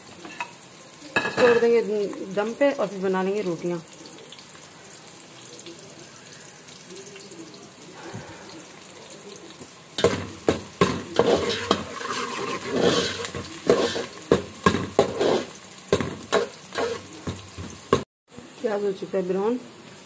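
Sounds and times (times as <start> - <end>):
onions sizzling in oil: 0.0 - 20.0
metal ladle scraping a pot: 10.0 - 17.9.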